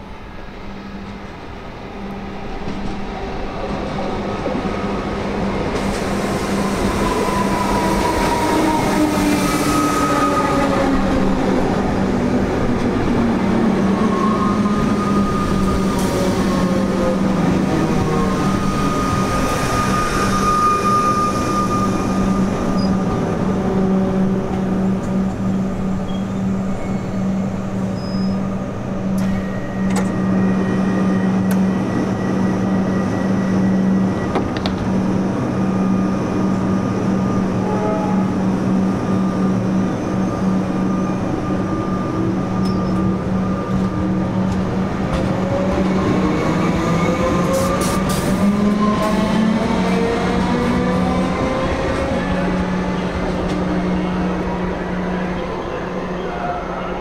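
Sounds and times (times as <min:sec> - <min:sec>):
train low hum: 0:00.0 - 0:57.0
electric train whine: 0:04.3 - 0:57.0.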